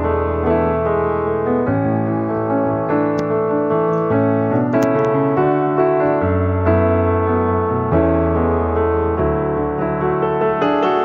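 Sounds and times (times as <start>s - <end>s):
slow keyboard chords: 0.0s - 11.0s.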